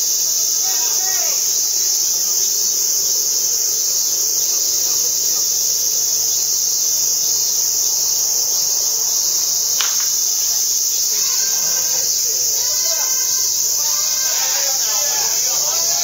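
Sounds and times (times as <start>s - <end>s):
insects shrilling: 0.0s - 16.0s.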